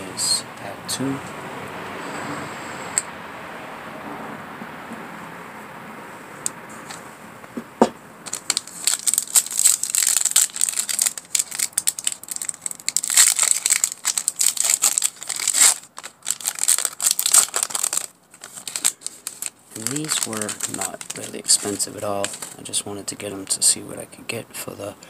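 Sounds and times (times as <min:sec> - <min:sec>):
foil wrapper crinkling and tearing: 0:08.3 - 0:22.8.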